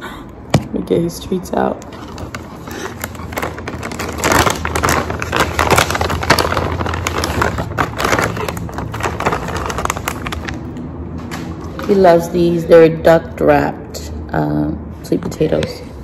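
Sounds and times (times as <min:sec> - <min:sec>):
plastic pouch crinkling: 0:01.8 - 0:10.8.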